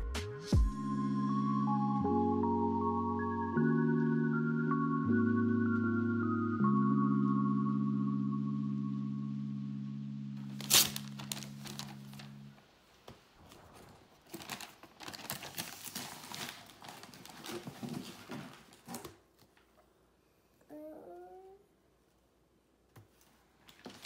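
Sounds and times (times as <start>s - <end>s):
wrapping paper crinkling and tearing: 10.4s - 12.5s, 13.5s - 19.1s, 23.6s - 24.0s
child's vocal sound: 20.6s - 21.7s.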